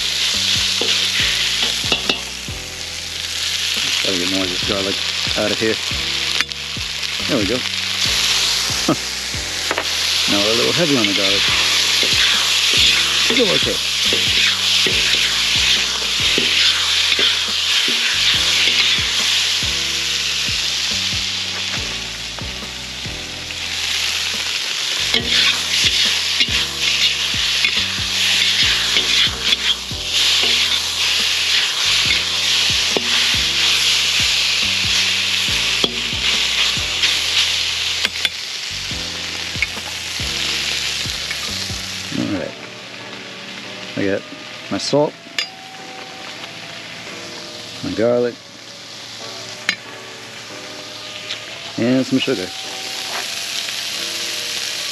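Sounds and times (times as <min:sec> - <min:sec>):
metal utensils scraping a pan: 0:00.0 - 0:02.5, 0:09.6 - 0:22.8, 0:23.5 - 0:38.5
meat sizzling in a wok: 0:00.0 - 0:54.9.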